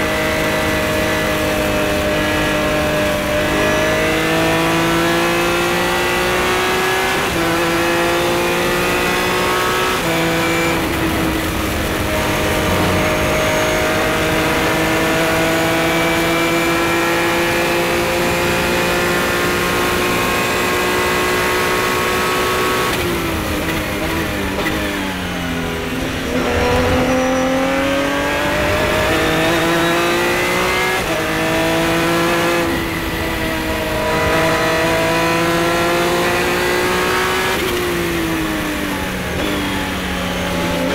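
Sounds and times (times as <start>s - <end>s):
race car engine at full throttle: 0.0s - 40.9s.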